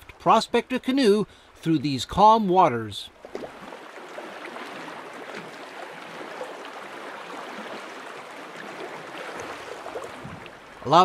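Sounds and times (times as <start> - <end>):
small splashes: 3.1 - 10.9
water lapping against canoe: 3.1 - 11.0.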